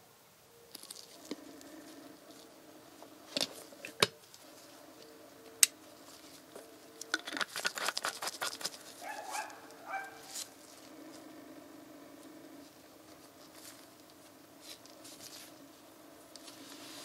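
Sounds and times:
faint steady hum: 0.0 - 17.0
plastic crackling and rubbing: 0.7 - 2.5, 3.3 - 11.3.

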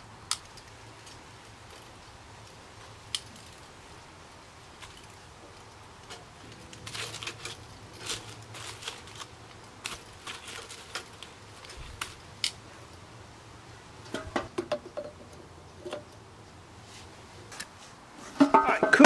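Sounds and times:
grill tongs clicking and scraping: 0.2 - 13.1, 14.0 - 16.6
metal clatter: 18.3 - 19.0.

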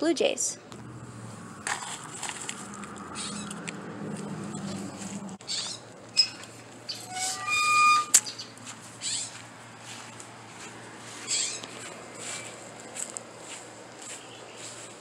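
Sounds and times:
gate hinge squeak: 5.6 - 8.3.

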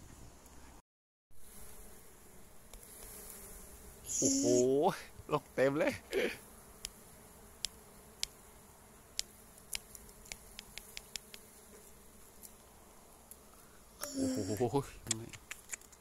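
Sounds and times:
bees humming: 1.4 - 15.0
sharp clicks: 9.2 - 11.4, 15.0 - 16.0.

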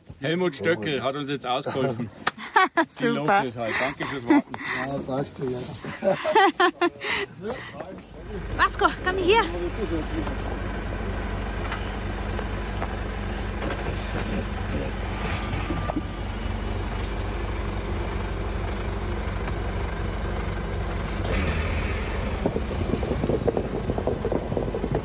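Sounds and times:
truck engine running: 1.0 - 25.0
snow chains clattering on snow: 3.6 - 6.5.

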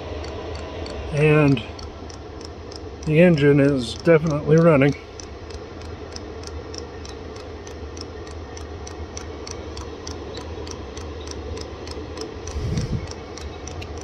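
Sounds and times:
blower motor hum: 0.0 - 14.0
fuel pump ticking: 0.0 - 14.0.

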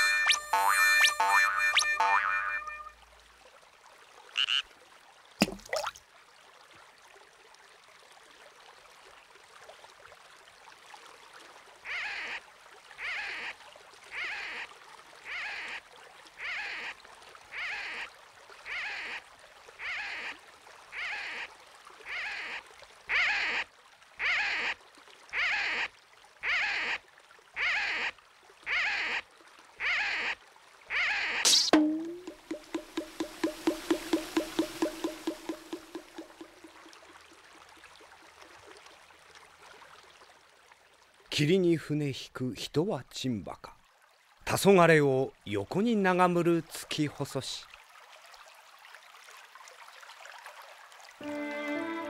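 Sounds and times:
rhythmic swishing strokes: 31.5 - 36.8.

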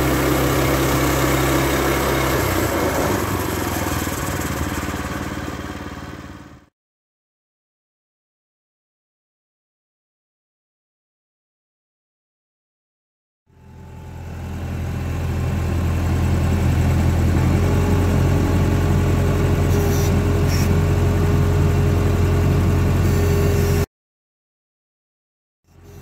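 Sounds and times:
skid steer engine running: 0.0 - 6.7, 13.5 - 23.9, 25.7 - 26.0.

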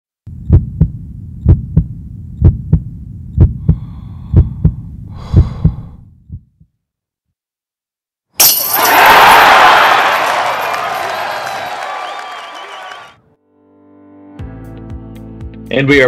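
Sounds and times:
heartbeat thumps: 0.3 - 6.8.

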